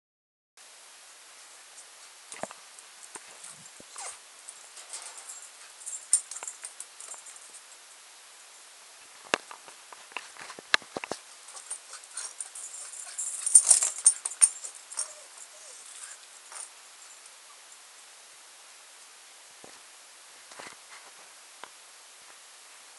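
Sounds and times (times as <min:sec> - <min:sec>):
rustling: 0:01.3 - 0:17.6.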